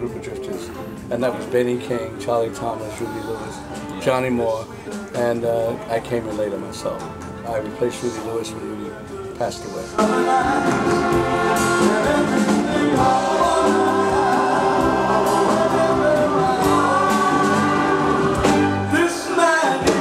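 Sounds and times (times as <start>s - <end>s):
band playing: 0.0s - 20.0s
male vocal group singing harmony: 9.7s - 20.0s.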